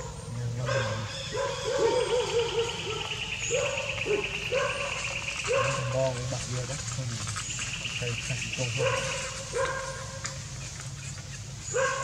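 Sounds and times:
macaque cries: 0.0s - 6.1s
high insect trill: 0.0s - 12.0s.

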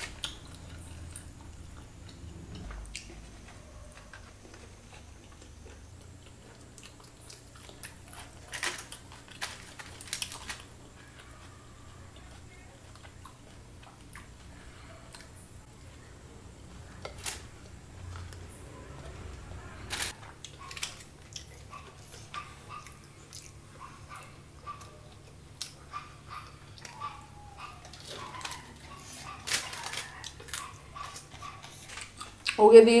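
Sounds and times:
faint low hum: 0.0s - 33.0s
person chewing and lip-smacking: 4.2s - 9.1s, 10.2s - 14.5s, 20.2s - 29.4s.

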